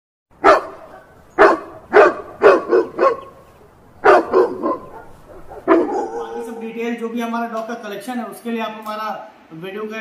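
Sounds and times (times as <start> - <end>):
dog barking: 0.4 - 6.6.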